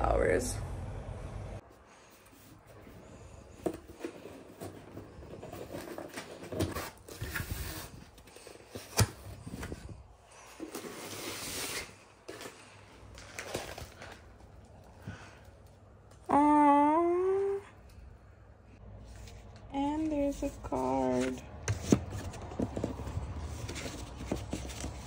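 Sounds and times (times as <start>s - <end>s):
handling rustling: 2.0s - 15.8s, 19.0s - 25.0s.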